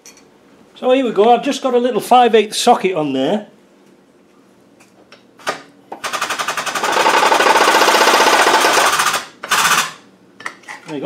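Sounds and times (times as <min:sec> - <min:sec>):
shop press rattling: 0:06.0 - 0:10.0.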